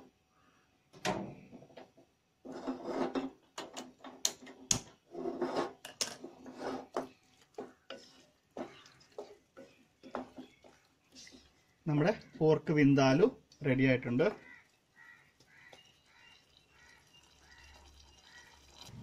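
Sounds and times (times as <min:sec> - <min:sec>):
wooden spatula scraping pan: 0:02.4 - 0:03.4, 0:05.0 - 0:11.8.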